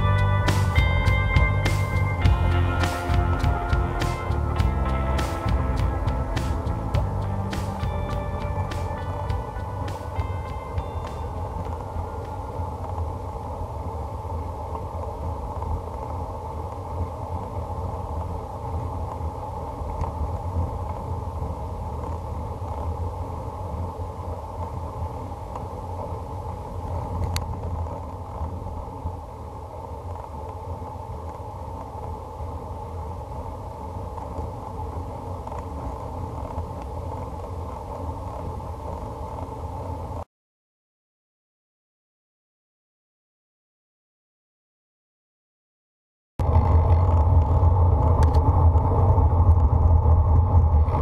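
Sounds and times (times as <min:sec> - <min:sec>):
wind rumble on microphone: 0:00.0 - 0:40.3, 0:46.4 - 0:51.0
tyre and road noise: 0:46.4 - 0:51.0.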